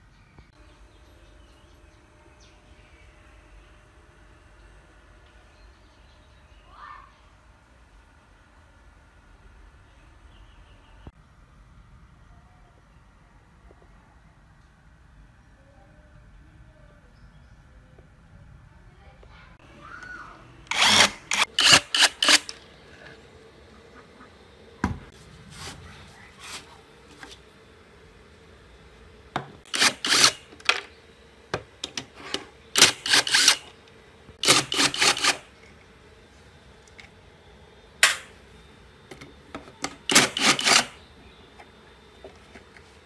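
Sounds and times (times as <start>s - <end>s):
impact driver hammering screws: 20.7s - 22.6s, 29.7s - 30.9s, 32.8s - 33.7s, 34.4s - 35.4s, 39.9s - 41.0s.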